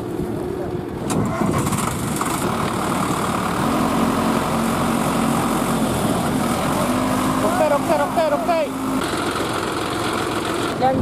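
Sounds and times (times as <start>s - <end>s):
diesel tractor engines running: 0.0s - 11.0s
low engine hum: 0.0s - 11.0s.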